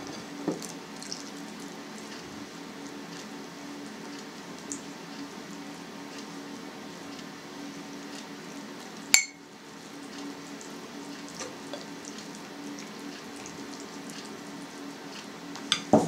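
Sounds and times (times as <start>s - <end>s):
steady low hum: 0.0s - 16.0s
spoon clinking on bowl: 9.2s - 9.4s.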